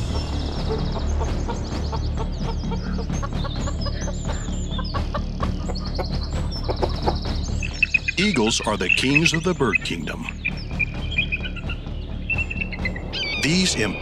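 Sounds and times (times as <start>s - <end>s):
small birds chirping: 0.0s - 14.0s
chickens clucking: 0.6s - 10.4s.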